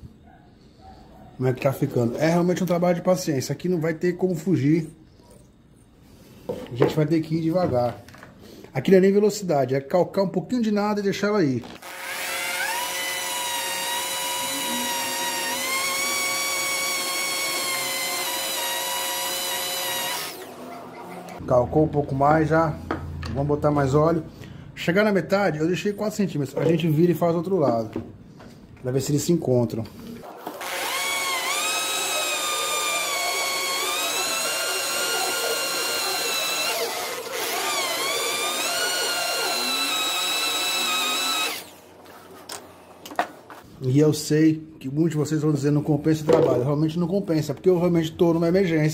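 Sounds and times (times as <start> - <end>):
electric drill boring into steel: 11.8 - 20.6, 30.3 - 41.8.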